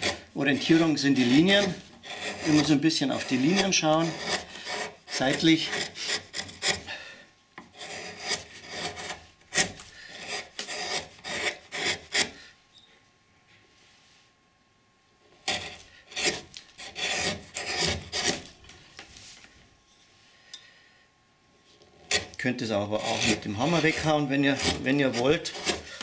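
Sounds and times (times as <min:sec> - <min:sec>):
carving gouge scraping wood: 0:00.0 - 0:07.0, 0:07.6 - 0:12.5, 0:15.4 - 0:18.6, 0:21.8 - 0:26.0.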